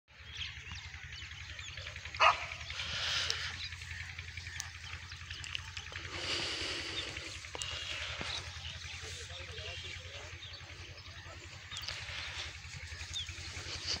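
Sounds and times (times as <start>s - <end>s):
birds chirping: 0.1s - 14.0s
dog barking: 2.2s - 2.7s.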